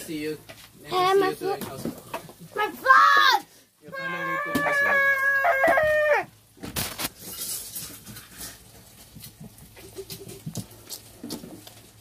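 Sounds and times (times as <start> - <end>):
child's high-pitched cry: 2.7 - 6.3.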